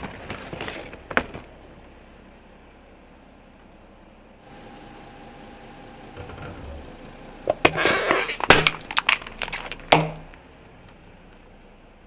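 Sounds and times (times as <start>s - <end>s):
tyre crushing plastic: 7.6s - 10.4s
plastic cracking and snapping: 8.2s - 10.4s.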